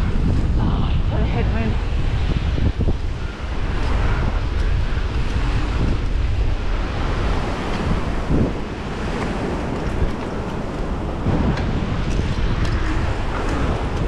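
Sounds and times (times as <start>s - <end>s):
wind buffeting microphone: 0.0s - 14.0s
tyres rolling on asphalt: 3.4s - 14.0s.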